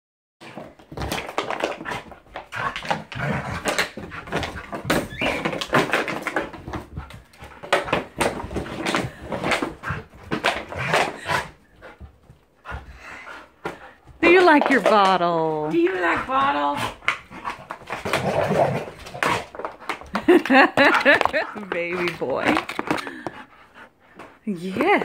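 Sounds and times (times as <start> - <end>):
plastic bottle crackling and knocking: 0.4 - 7.0, 7.6 - 11.2, 17.0 - 23.4
dog whining: 4.9 - 5.7.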